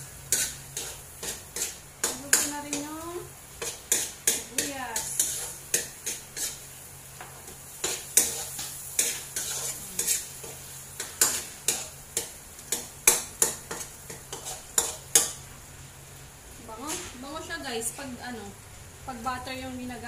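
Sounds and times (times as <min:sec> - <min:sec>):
faint sizzle: 0:00.0 - 0:20.0
metal spoon scraping a pot: 0:03.6 - 0:06.6, 0:07.8 - 0:10.6, 0:13.4 - 0:15.3.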